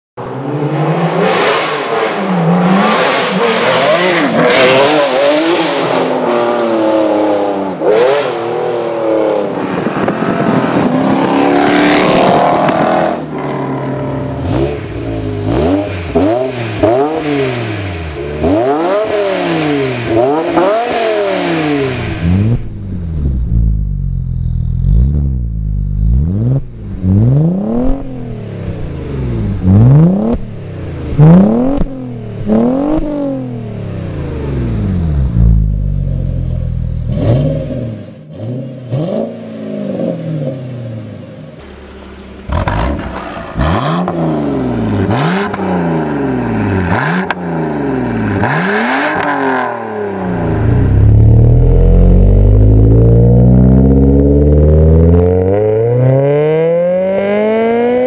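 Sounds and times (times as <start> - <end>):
sports car accelerating hard: 0.2 - 41.3, 42.1 - 58.0
car engine revving at standstill: 9.6 - 41.6, 42.4 - 58.0
car exhaust deep blips: 22.2 - 28.4, 50.2 - 56.3.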